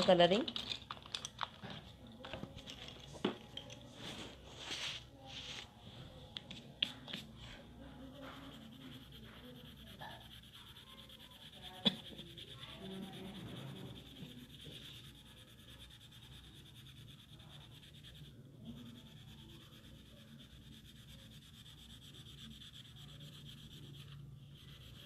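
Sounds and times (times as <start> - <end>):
pencil rubbing on paper: 6.5 - 25.0
sharp clicks of pencil and paper: 11.5 - 12.6.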